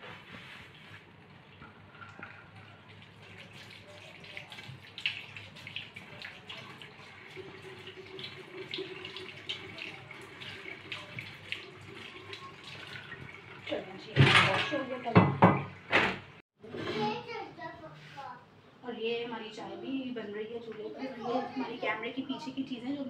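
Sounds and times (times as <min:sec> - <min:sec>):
pan knocking against sink: 0:14.1 - 0:16.3.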